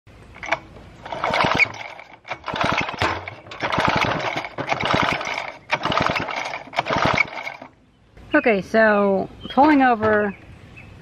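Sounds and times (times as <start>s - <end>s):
chainsaw pull-cord starter whirring: 0.4s - 7.7s.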